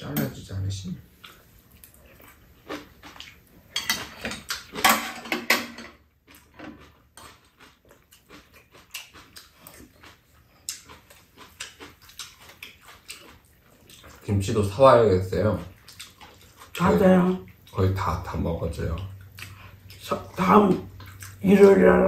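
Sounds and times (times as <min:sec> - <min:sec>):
chewing and slurping: 0:01.2 - 0:04.8, 0:06.2 - 0:14.6, 0:15.4 - 0:17.8, 0:18.9 - 0:21.4.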